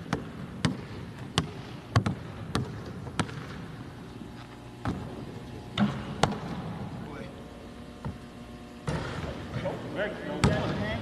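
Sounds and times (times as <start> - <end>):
basketball bouncing on hardwood: 0.1 - 3.5, 4.8 - 5.1, 5.8 - 6.6.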